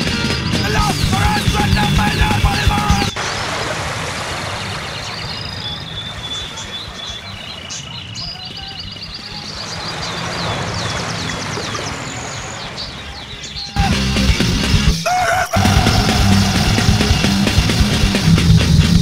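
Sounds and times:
water rushing over rocks: 0:02.7 - 0:07.0
birds chirping and trilling: 0:04.1 - 0:14.3, 0:14.9 - 0:18.9.

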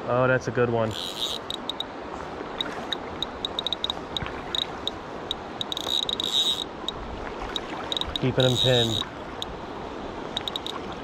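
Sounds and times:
river water rushing: 0:00.0 - 0:11.0
fishing reel clicking: 0:00.9 - 0:01.8, 0:03.2 - 0:06.7, 0:07.5 - 0:09.5, 0:10.4 - 0:10.8.

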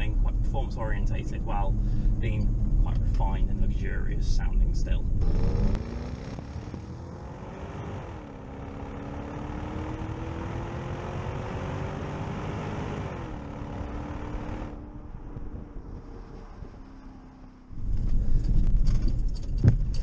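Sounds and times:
car exhaust accelerating: 0:00.0 - 0:20.0
tyre and wind noise: 0:14.8 - 0:17.1, 0:17.7 - 0:20.0.

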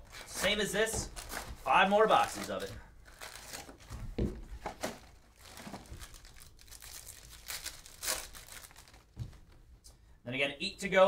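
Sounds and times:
foil wrappers crinkling: 0:00.1 - 0:04.0, 0:04.6 - 0:09.3
foil pack tearing open: 0:05.4 - 0:09.1.

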